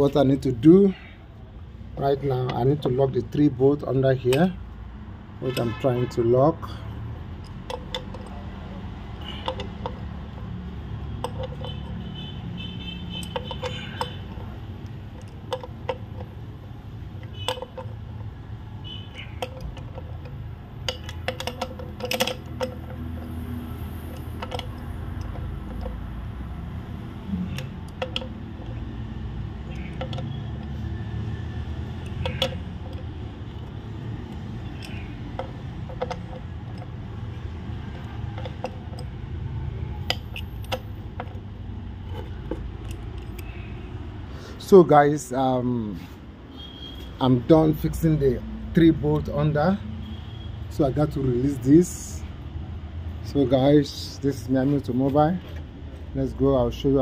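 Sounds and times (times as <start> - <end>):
socket clinking against metal case: 7.4 - 8.4, 11.2 - 12.0, 13.2 - 16.4, 17.2 - 18.1, 19.2 - 26.1, 27.5 - 28.8, 29.7 - 30.7, 32.0 - 39.2.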